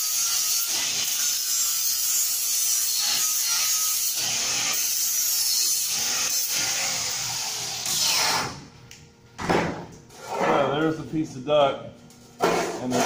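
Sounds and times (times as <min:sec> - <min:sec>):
grinder grinding metal: 0:00.0 - 0:08.3.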